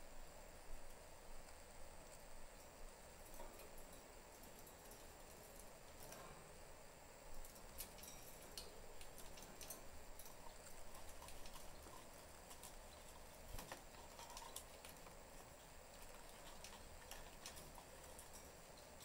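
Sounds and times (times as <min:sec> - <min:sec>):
budgerigars clicking in cage: 0:07.4 - 0:19.0.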